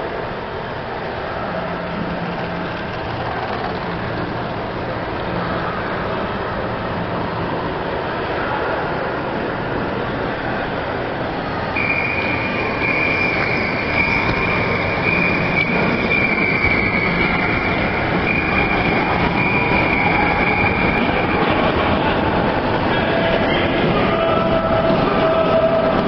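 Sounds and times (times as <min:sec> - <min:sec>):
model train wheels rushing: 0:01.5 - 0:06.6.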